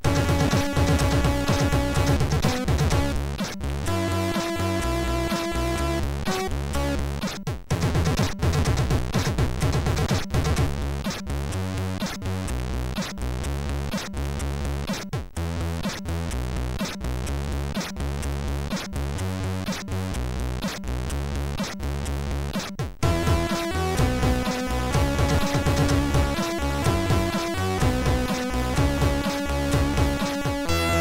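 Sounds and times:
chiptune music: 0:00.0 - 0:11.4, 0:23.0 - 0:31.0.

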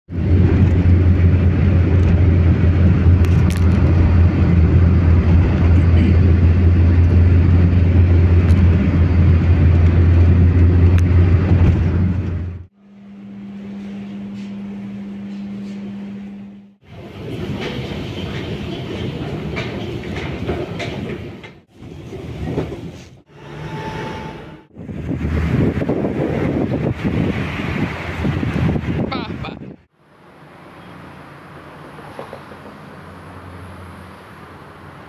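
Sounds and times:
car road and engine rumble: 0:00.1 - 0:13.6, 0:24.7 - 0:35.0
steady single-pitched hum: 0:12.2 - 0:16.8.

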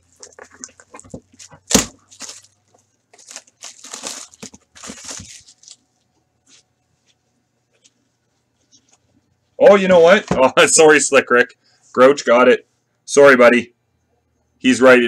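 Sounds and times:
plastic shrink-wrap tearing: 0:00.1 - 0:05.8.

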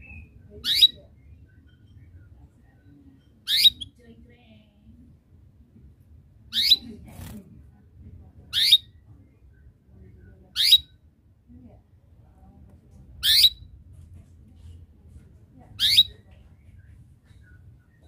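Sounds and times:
canary chirping: 0:00.0 - 0:04.2, 0:06.4 - 0:07.3, 0:08.4 - 0:11.1, 0:13.1 - 0:13.8, 0:15.7 - 0:18.0.

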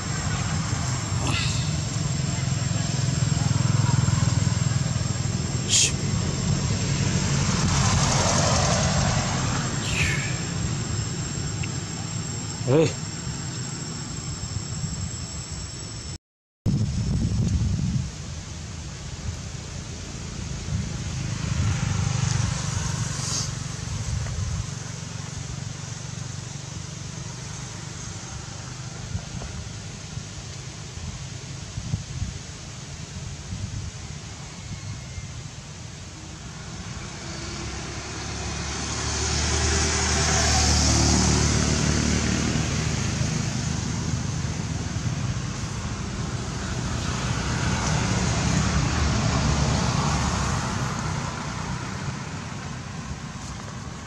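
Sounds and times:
low outdoor rumble: 0:00.0 - 0:15.9, 0:39.8 - 0:54.0
pulsing low engine drone: 0:00.0 - 0:34.4, 0:35.0 - 0:54.0
vehicle noise: 0:00.0 - 0:54.0.

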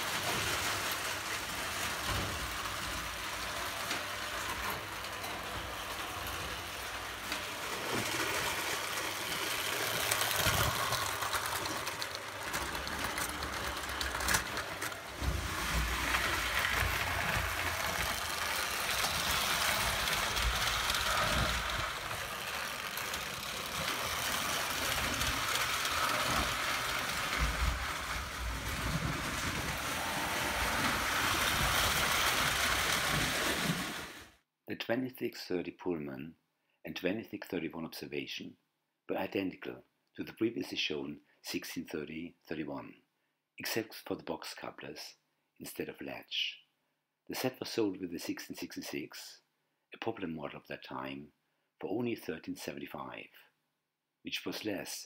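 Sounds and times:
toy train rumbling on track: 0:00.0 - 0:34.4.

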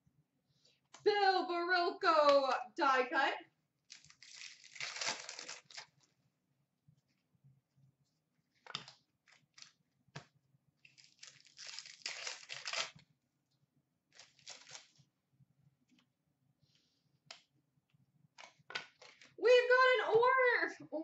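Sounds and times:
foil wrapper crinkling and tearing: 0:03.9 - 0:06.0, 0:10.8 - 0:13.0, 0:14.1 - 0:15.0.

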